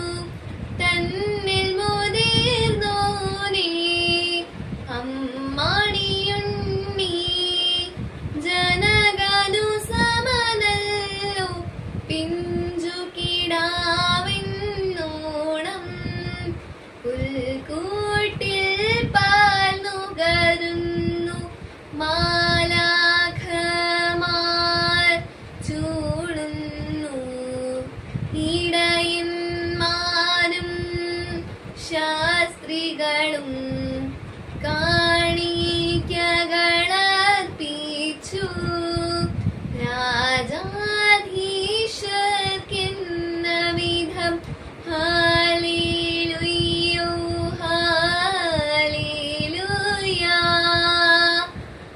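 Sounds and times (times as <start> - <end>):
girl singing a hymn: 0.0 - 51.7.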